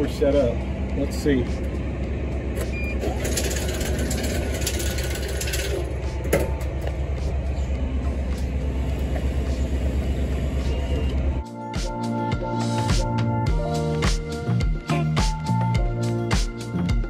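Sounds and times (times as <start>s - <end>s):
low mechanical hum: 0.0s - 11.4s.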